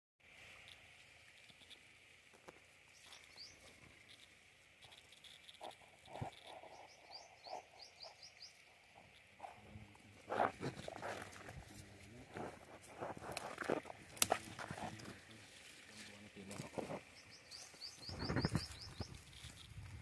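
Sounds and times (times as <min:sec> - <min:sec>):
small birds chirping: 0:00.6 - 0:19.8
hand rustling plants: 0:09.0 - 0:20.0.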